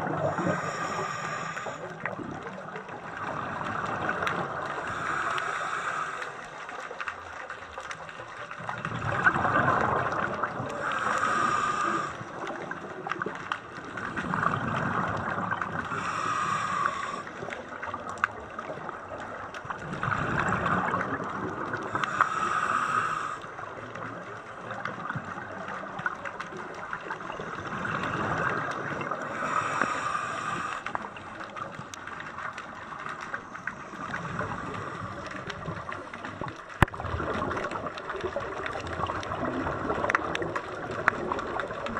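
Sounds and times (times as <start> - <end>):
diver breathing through regulator: 0.0 - 2.6, 3.2 - 7.1, 9.5 - 12.8, 13.9 - 17.8, 20.0 - 24.0, 27.4 - 31.8, 33.3 - 36.2
exhaled bubbles underwater: 0.0 - 41.9.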